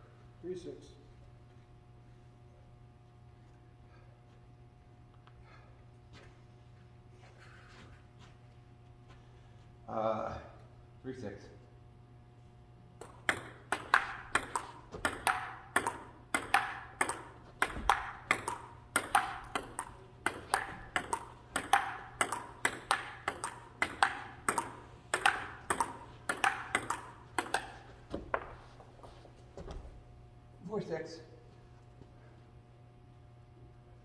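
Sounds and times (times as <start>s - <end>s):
ping-pong ball clicking: 13.0s - 27.9s.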